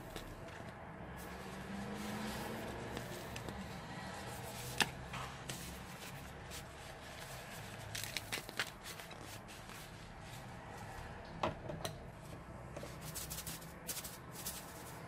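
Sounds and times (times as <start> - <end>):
foam and rubber glove squishing: 1.2 - 10.4, 13.0 - 15.0.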